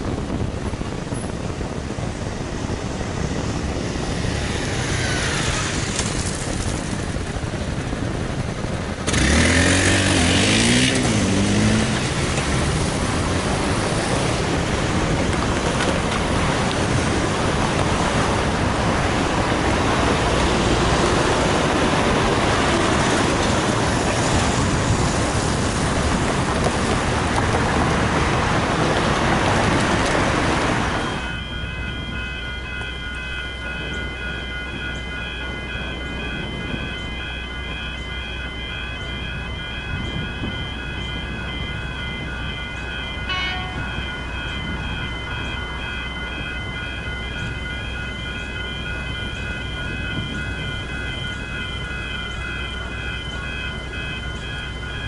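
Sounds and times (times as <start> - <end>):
cars driving past: 3.8 - 7.0, 9.1 - 35.0
engine revving: 9.0 - 13.9.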